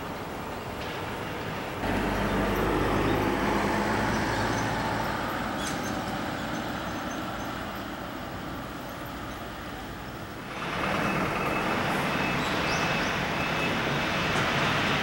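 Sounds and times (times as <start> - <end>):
motor vehicle passing: 1.8 - 6.5.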